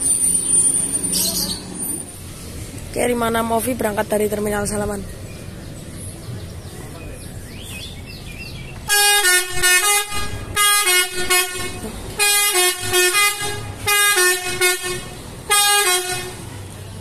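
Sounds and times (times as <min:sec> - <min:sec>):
musical air horn tune: 0:08.9 - 0:16.4.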